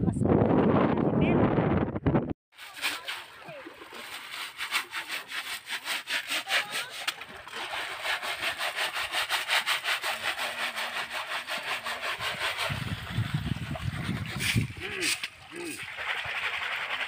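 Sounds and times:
fast rasping scrapes: 2.6 - 17.0.

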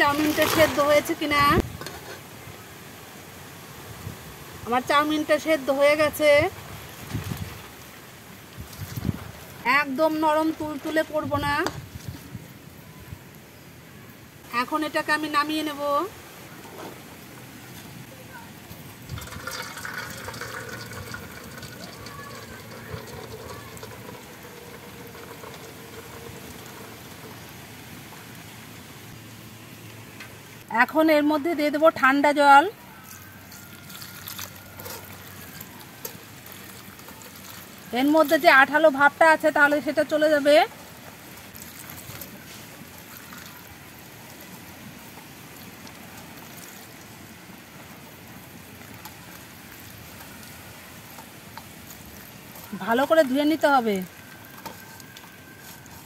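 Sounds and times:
water splashing through colander: 0.0 - 1.8, 18.8 - 29.2, 32.9 - 56.0.

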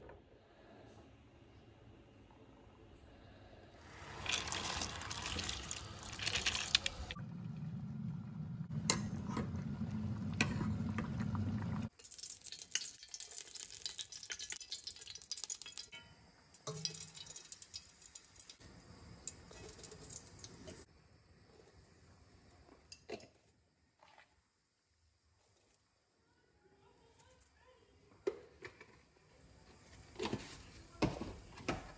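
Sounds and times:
lentils poured into boiling water: 3.8 - 7.2, 11.9 - 16.0, 16.7 - 18.6, 19.2 - 20.8
oil hissing in a pot: 3.8 - 7.2, 11.9 - 23.0
small clinks in steel pot: 12.2 - 18.6.

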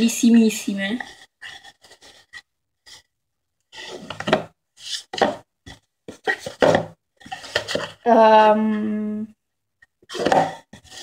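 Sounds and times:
cardboard boxes scraping on table: 10.1 - 11.0.

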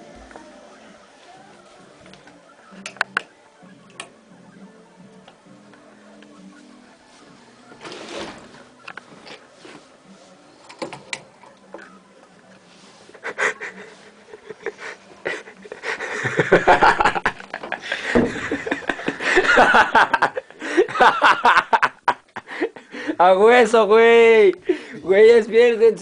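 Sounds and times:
stifled snickering laughter: 13.1 - 23.0.

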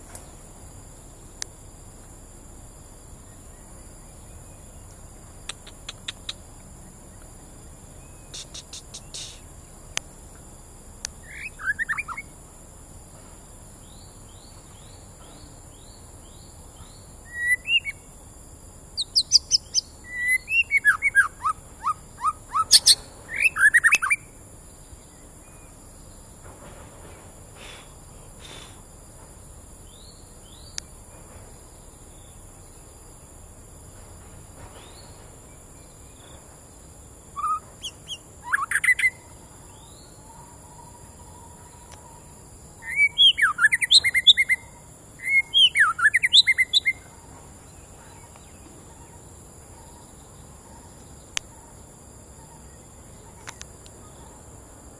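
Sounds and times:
high-pitched insect drone: 0.0 - 26.4
bird singing whistled phrases: 11.2 - 12.3, 17.2 - 18.1, 19.0 - 24.3, 37.4 - 39.2, 42.8 - 47.0.

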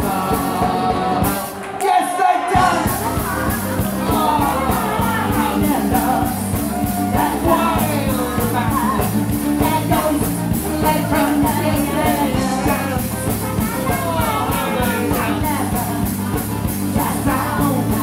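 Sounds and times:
drum kit beat: 0.0 - 18.0
person singing: 0.0 - 18.0.

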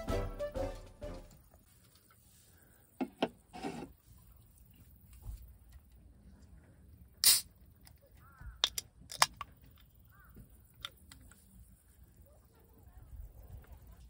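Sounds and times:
can opening fizzing hiss: 7.2 - 7.5.

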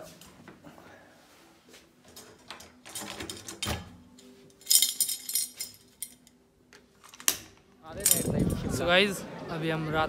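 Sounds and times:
metal key jingling: 4.6 - 6.4, 8.0 - 8.6.

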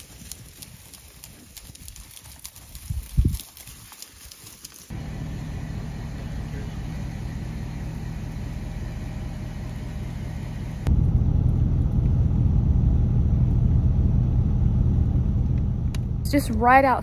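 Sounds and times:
truck engine rumbling: 4.9 - 17.0.

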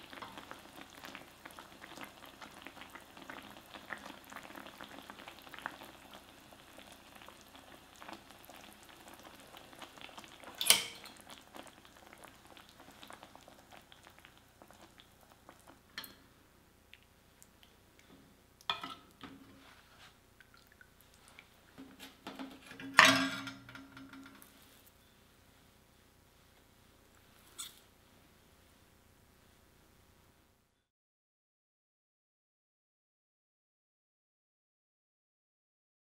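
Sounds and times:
broth bubbling in a pan: 0.0 - 16.3, 20.2 - 24.6.

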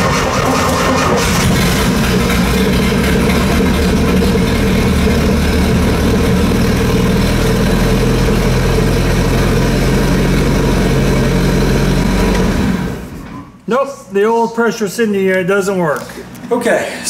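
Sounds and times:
boat engine idling: 0.0 - 13.1.

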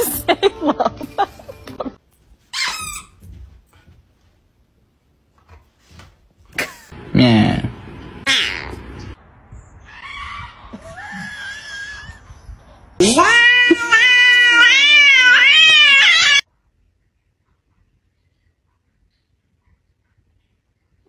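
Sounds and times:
hen screaming: 13.0 - 16.4.

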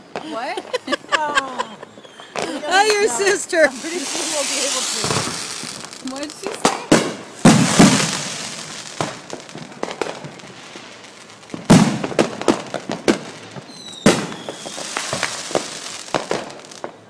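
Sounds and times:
fireworks banging and crackling: 0.0 - 17.0
high whistle: 13.7 - 15.1.

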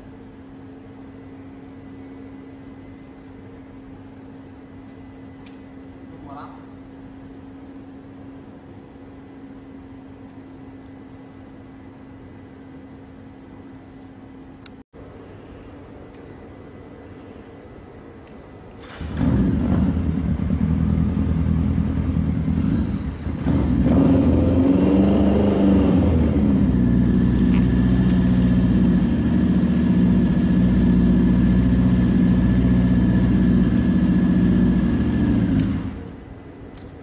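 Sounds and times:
motorcycle engine revving: 18.9 - 36.1.

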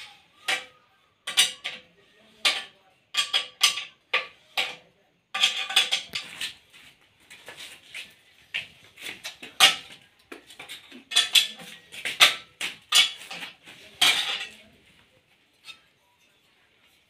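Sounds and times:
brass fittings clinking: 2.4 - 4.8, 5.4 - 6.6.

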